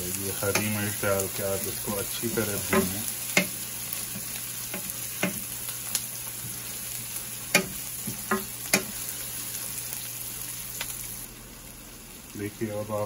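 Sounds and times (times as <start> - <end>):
onions sizzling in oil: 0.0 - 13.0
wooden spatula knocking on pan: 4.7 - 5.4, 7.5 - 8.9.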